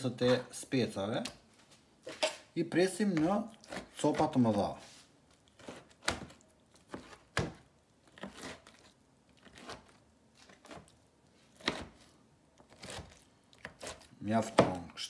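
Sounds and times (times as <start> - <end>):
knife cutting on plastic board: 5.6 - 14.8.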